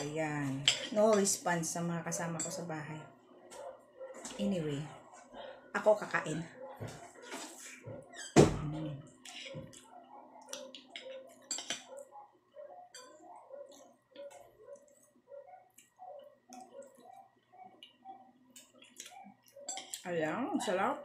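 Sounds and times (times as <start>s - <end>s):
close-up chewing: 9.2s - 20.0s
cutlery clinking on plate: 10.6s - 11.9s, 19.7s - 20.0s.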